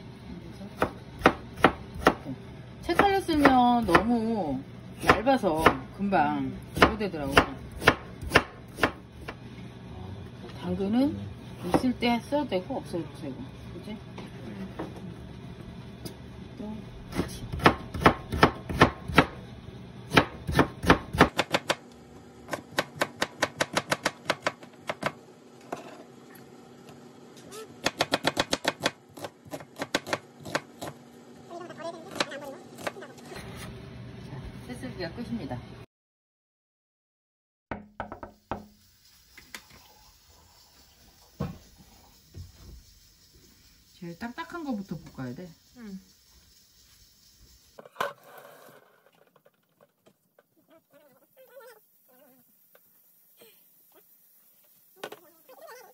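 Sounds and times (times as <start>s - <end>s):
kitchenware knocking on a surface: 37.7s - 38.7s.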